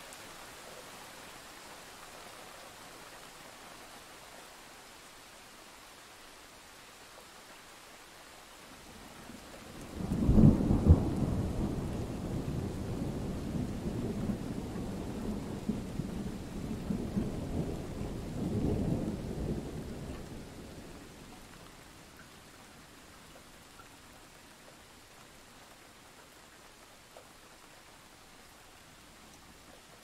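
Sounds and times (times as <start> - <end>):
rain hiss: 0.0 - 30.0
thunder rumbling: 10.0 - 20.8.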